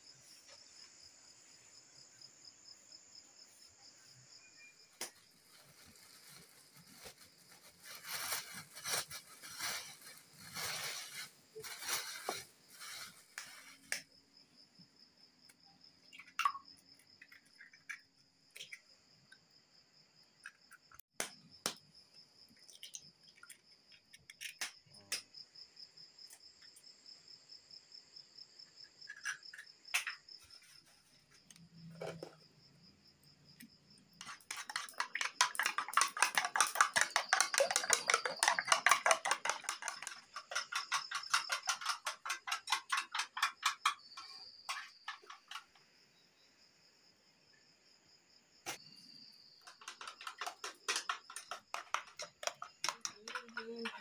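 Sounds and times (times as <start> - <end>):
cricket trilling: 0.0 - 54.0
plastic bag rustling: 5.3 - 13.9
eggs being cracked: 34.2 - 45.6, 49.6 - 54.0
spoon beating eggs in a bowl: 34.2 - 45.6, 49.6 - 54.0.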